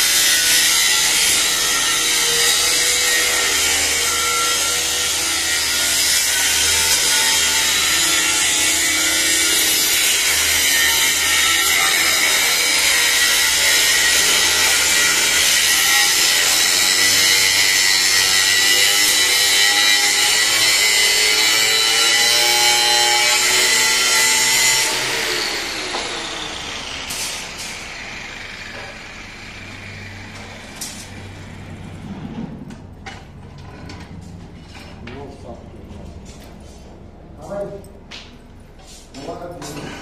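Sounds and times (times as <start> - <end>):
angle grinder cutting steel: 0.0 - 31.7.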